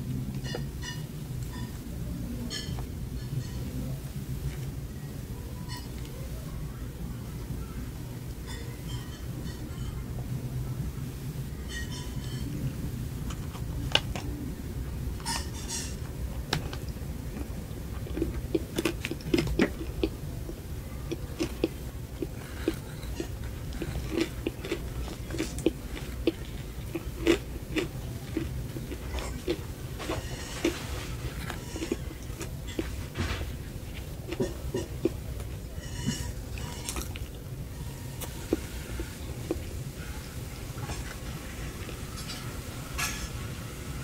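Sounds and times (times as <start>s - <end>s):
low steady hum: 0.0s - 44.0s
biting and chewing cupcake: 15.2s - 42.4s.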